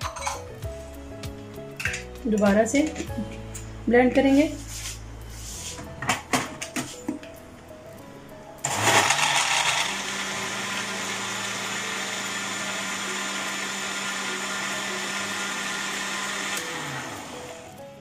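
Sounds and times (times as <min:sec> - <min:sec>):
blender whirring: 0:08.6 - 0:17.6.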